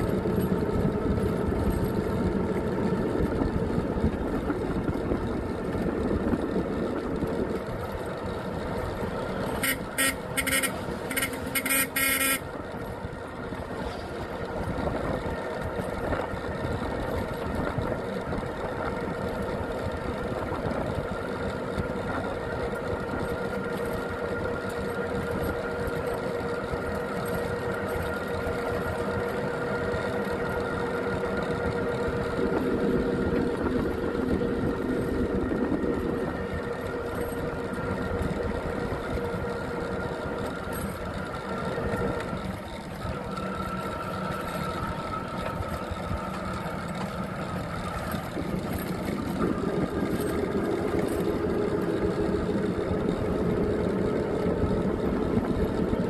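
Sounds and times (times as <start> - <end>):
vehicle engine running: 0.0 - 56.0.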